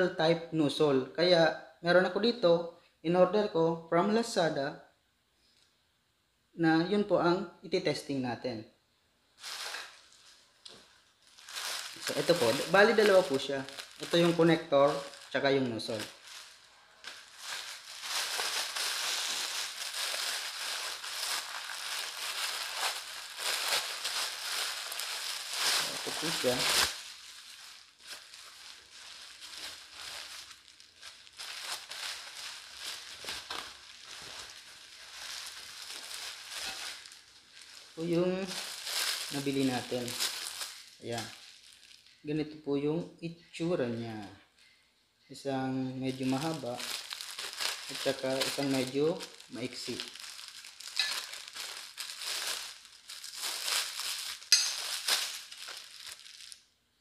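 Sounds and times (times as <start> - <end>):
packaging crinkling and rustling: 9.4 - 42.2, 46.0 - 56.7.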